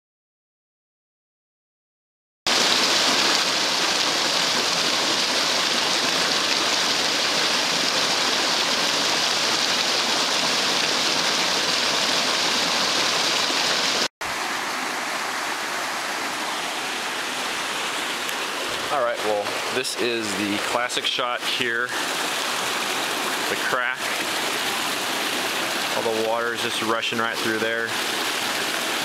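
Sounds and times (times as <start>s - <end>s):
creek water rushing: 2.5s - 29.0s.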